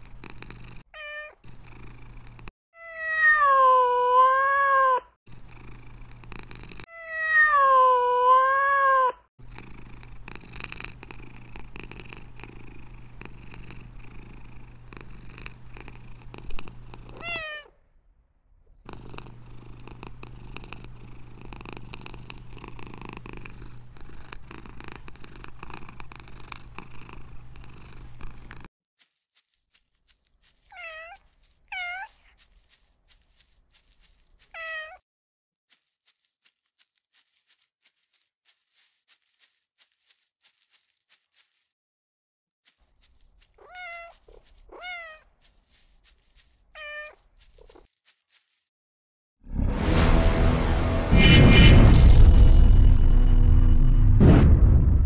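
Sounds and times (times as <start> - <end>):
cat purring: 0.0 - 2.5, 5.3 - 6.9, 9.4 - 17.8, 18.5 - 28.7
cat meowing: 1.0 - 1.4, 2.8 - 5.1, 6.9 - 9.2, 17.2 - 17.8, 30.7 - 32.4, 34.5 - 35.0, 43.6 - 45.3, 46.7 - 47.8.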